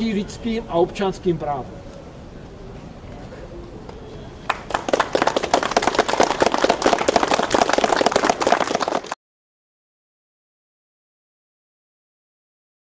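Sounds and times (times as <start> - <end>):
small group clapping: 4.4 - 9.2.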